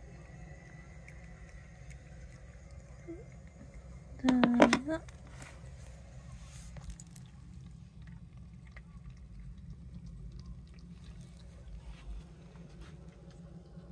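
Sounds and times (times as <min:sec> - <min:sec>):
cat chewing food: 0:00.0 - 0:13.9
steady low hum: 0:00.0 - 0:13.9.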